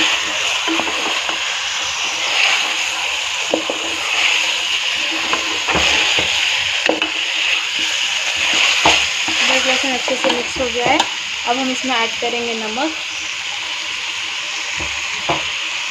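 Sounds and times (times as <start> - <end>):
meat and onions sizzling in oil: 0.0 - 15.9
spoon stirring in pot: 5.0 - 11.2.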